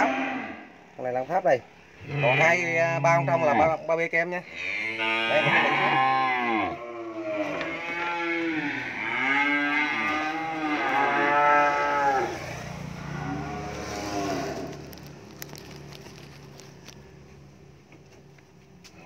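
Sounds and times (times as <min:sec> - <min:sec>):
calves mooing: 0:00.0 - 0:00.8, 0:02.0 - 0:15.0.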